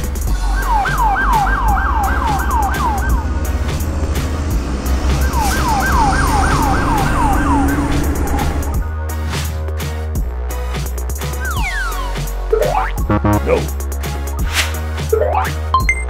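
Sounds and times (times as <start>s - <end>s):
fire engine siren wailing: 0.3s - 8.8s.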